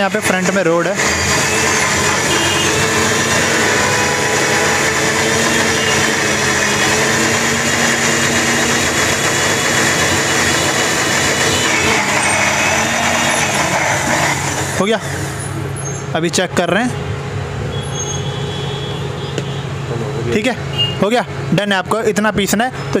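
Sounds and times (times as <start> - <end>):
mixer grinder running: 0.0 - 15.4.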